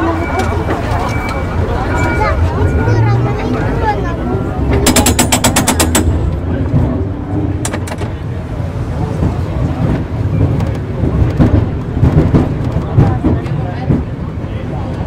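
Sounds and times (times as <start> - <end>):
tram rumbling: 0.0 - 15.0
sharp clicks: 4.8 - 6.4.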